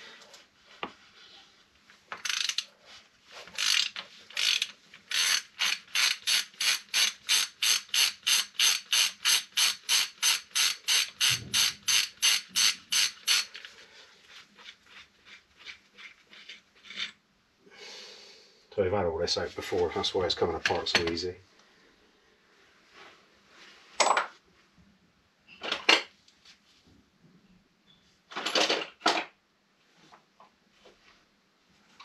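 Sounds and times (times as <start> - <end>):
ratchet wrench clicking: 2.2 - 2.7, 3.6 - 13.6.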